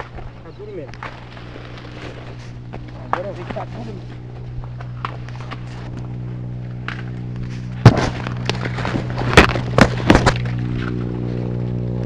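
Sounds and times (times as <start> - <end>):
steady low hum: 0.0 - 12.0
corn ears snapping off stalks: 6.8 - 11.3.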